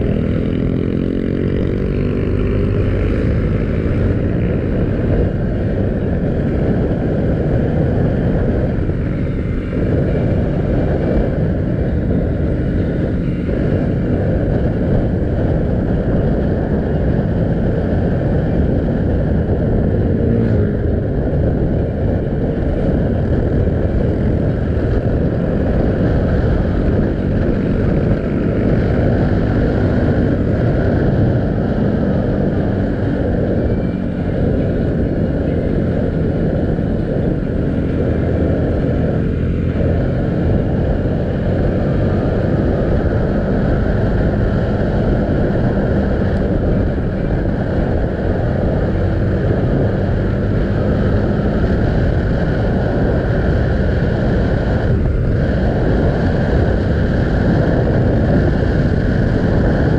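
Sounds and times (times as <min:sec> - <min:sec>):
motorcycle engine running: 0:00.0 - 0:59.9
wind rush over microphone: 0:00.0 - 0:59.9.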